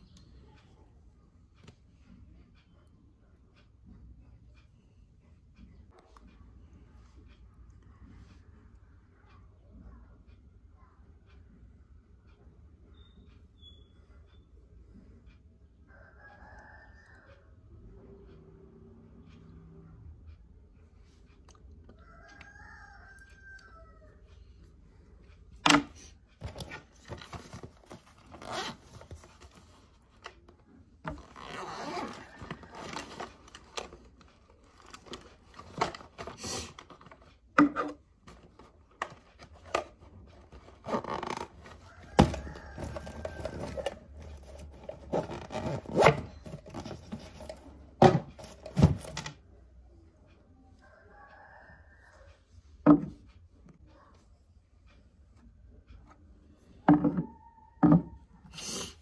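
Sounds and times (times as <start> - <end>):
sharp clicks and knocks: 25.6 - 28.4
handbag rustling and scraping: 26.5 - 29.5, 31.1 - 34.0, 40.8 - 47.6.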